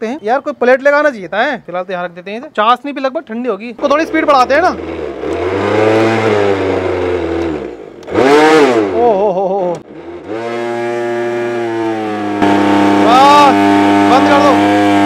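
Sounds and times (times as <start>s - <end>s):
motor humming with changing pitch: 4.0s - 15.0s.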